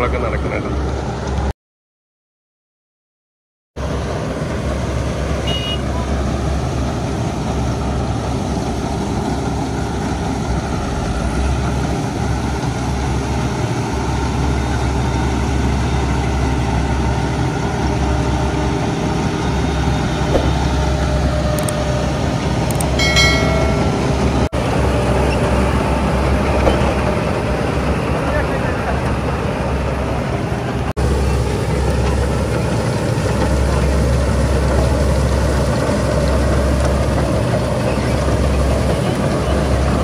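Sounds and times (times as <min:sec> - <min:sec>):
heavy engine humming: 0:00.0 - 0:01.5, 0:03.8 - 0:40.0.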